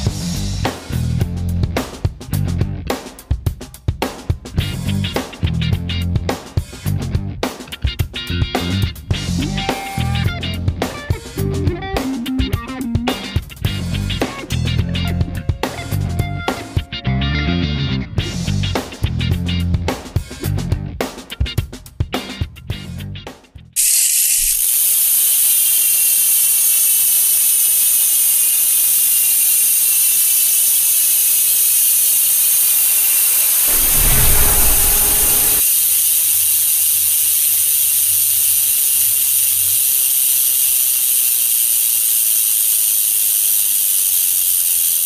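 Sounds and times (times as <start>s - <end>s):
bike freehub ratchet whirring: 23.8s - 45.0s
low rumble: 32.8s - 35.7s.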